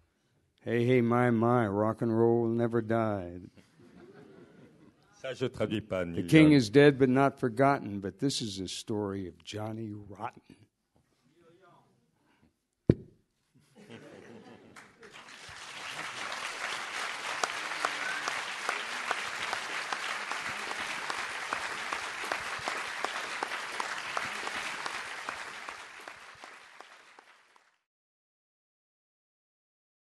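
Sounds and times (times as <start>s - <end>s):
audience applauding: 14.7s - 27.8s.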